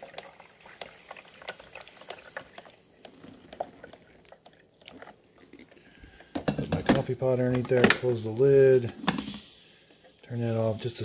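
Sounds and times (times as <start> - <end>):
water pouring and trickling: 0.0 - 6.4.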